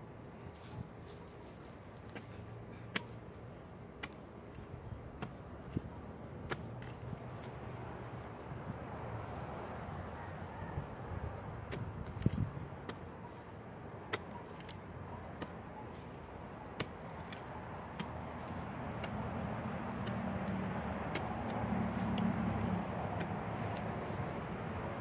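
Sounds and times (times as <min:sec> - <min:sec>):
trowel clicking on dirt clods: 0:02.0 - 0:07.6, 0:11.7 - 0:24.4
trowel digging into soil: 0:02.0 - 0:07.6, 0:11.7 - 0:25.0.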